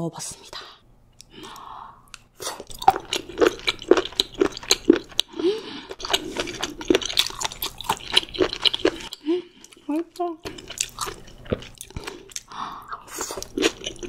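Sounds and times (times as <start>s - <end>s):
wet chewing and mouth smacks: 1.2s - 14.0s.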